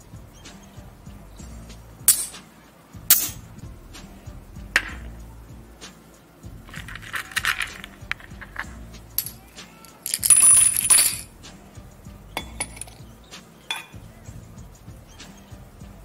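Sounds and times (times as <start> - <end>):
light background music: 0.0 - 16.0
tiny shells rustling: 6.7 - 11.3.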